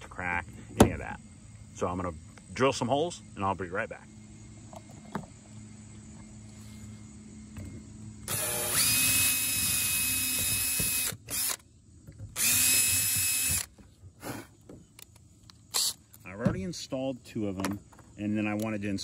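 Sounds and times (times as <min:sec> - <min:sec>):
cordless drill whining: 0:08.2 - 0:11.6, 0:12.3 - 0:13.8.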